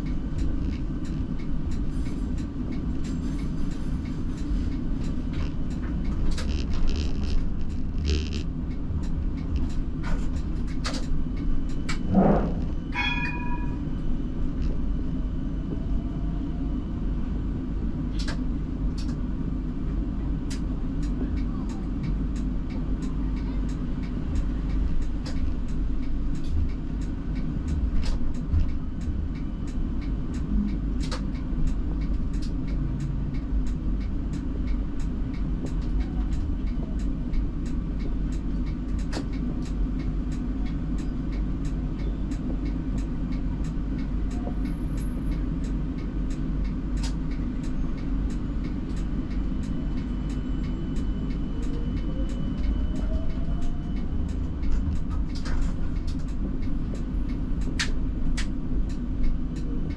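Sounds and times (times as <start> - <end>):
faint regular ticking: 0.0 - 12.0, 20.5 - 59.9
tram rumble and hum: 0.0 - 59.9.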